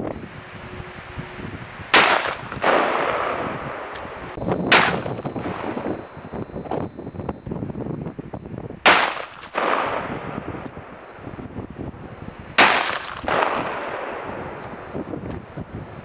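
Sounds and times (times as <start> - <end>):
gunshots: 1.9 - 3.5, 4.7 - 5.8, 8.8 - 10.2, 12.6 - 14.4.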